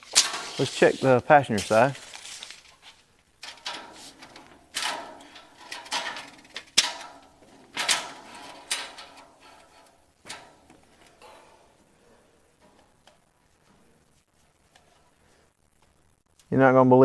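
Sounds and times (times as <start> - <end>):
tape measure scraping on metal: 0.0 - 2.7.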